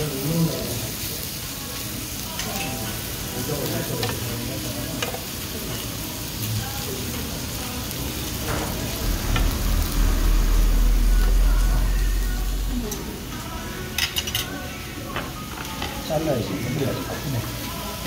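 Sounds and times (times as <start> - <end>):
meat sizzling on a grill pan: 0.0 - 10.3, 15.4 - 18.0
loud low rumble: 8.0 - 13.7.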